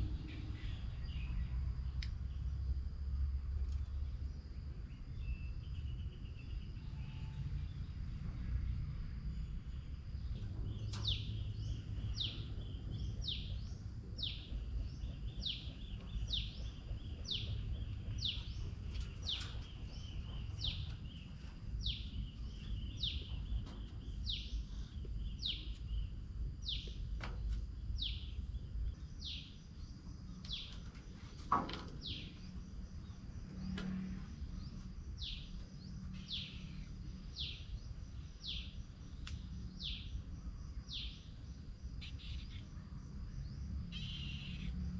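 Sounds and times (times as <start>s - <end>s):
low background rumble: 0.0s - 44.9s
bird calling: 43.9s - 44.8s.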